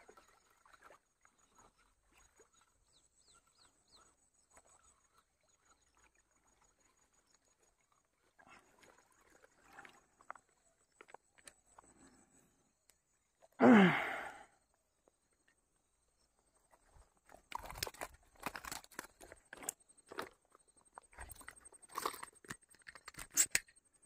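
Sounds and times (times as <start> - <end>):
small clicks and rustles: 8.6 - 13.1, 16.7 - 24.0.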